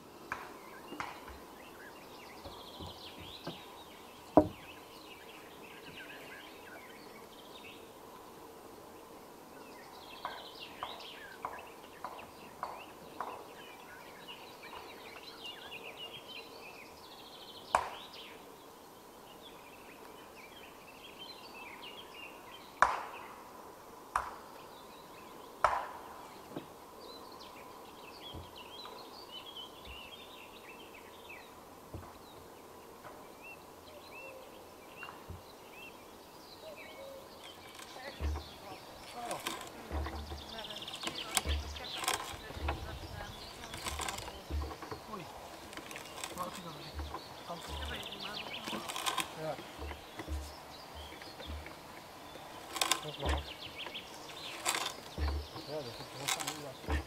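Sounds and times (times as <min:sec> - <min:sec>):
birds chirping: 0:00.0 - 0:23.8, 0:24.4 - 0:57.0
knocks on wooden log beam: 0:04.3 - 0:04.7, 0:37.9 - 0:48.1, 0:54.7 - 0:57.0.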